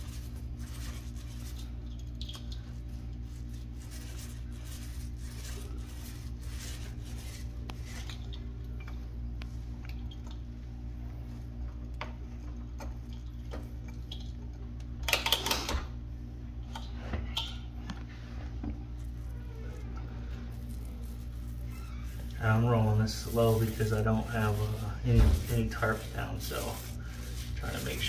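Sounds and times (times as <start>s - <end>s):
paint roller swishing: 0.0s - 2.2s, 2.8s - 8.3s, 20.2s - 28.0s.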